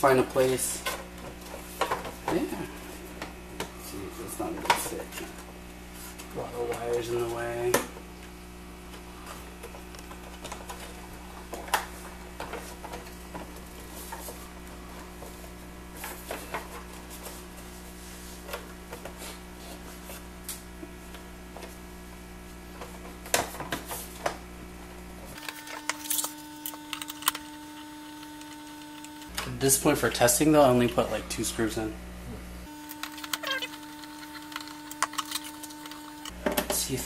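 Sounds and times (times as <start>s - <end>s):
steady low hum: 24.1s - 37.0s
screwdriver clicking on screws: 32.8s - 36.3s.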